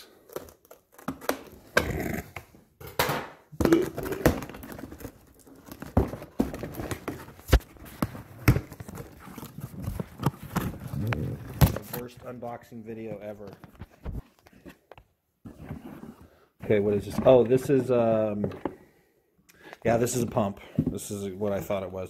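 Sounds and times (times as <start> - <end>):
knocks and thumps of box: 2.9 - 12.2
cardboard and tape scraping: 3.7 - 12.2.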